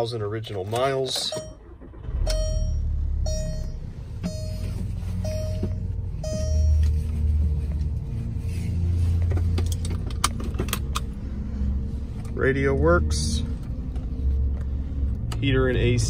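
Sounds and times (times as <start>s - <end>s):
low cabin rumble: 0.0s - 16.0s
dashboard warning chime dinging: 1.2s - 7.2s.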